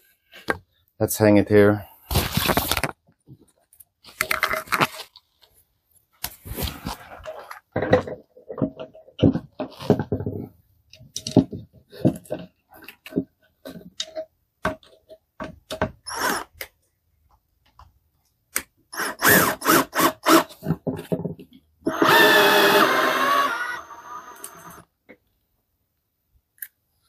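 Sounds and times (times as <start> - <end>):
power drill running: 19.0 - 20.5, 21.9 - 24.8.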